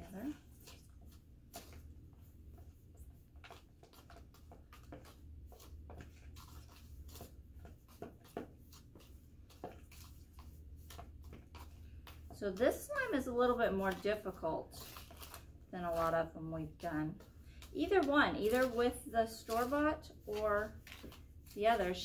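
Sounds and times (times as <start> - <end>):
spoons scraping plastic bowls: 13.8 - 22.0.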